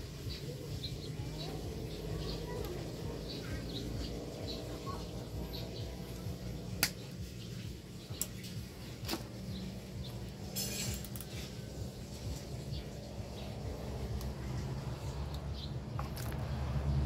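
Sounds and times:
birds chirping faintly: 0.0s - 17.0s.

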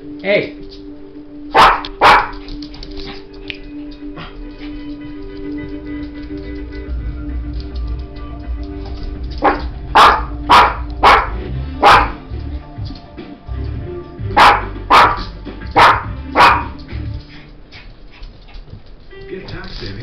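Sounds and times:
television audio: 0.0s - 20.0s
small dog barking: 1.5s - 2.4s, 9.4s - 12.2s, 14.4s - 16.8s.

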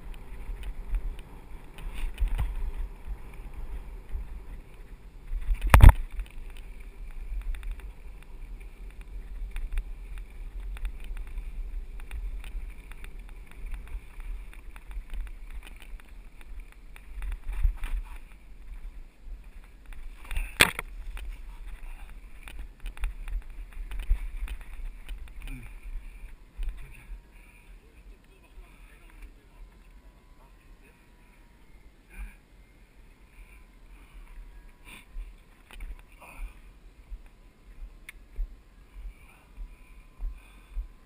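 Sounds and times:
bike rattling: 0.0s - 27.6s
wind and ground rumble on microphone: 0.0s - 41.0s.

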